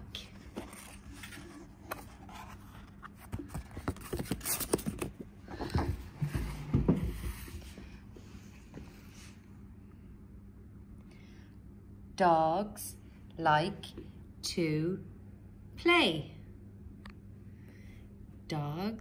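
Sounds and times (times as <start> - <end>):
paper rustling and scraping: 0.2 - 5.2.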